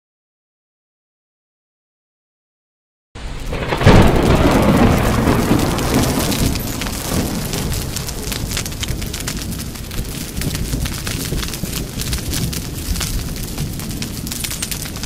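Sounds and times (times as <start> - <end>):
crackling roar: 3.2 - 15.0
deep rumbling blast: 3.2 - 15.0.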